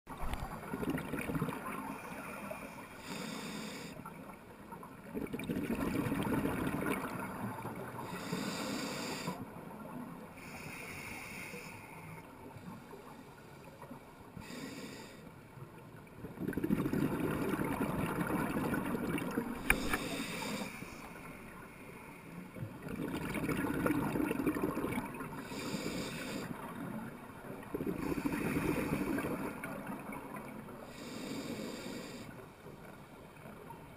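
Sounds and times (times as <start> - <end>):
exhaled bubbles rushing: 0.1 - 1.9, 5.0 - 7.6, 16.2 - 20.0, 22.8 - 25.5, 27.6 - 30.5
regulator inhale hiss: 2.4 - 4.1, 8.0 - 9.5, 10.4 - 12.3, 14.4 - 15.4, 19.6 - 22.5, 25.4 - 26.7, 30.9 - 32.5.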